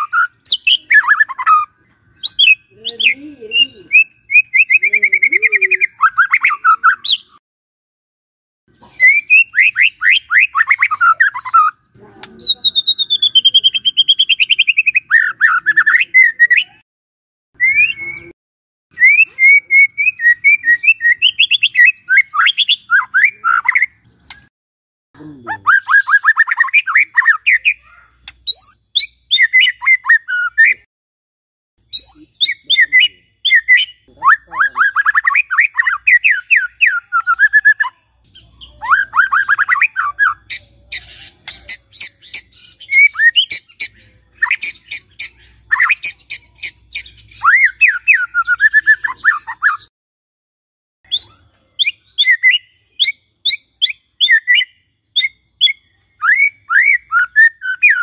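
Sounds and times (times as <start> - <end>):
bird singing falling notes: 0.0 - 7.4, 9.0 - 16.8.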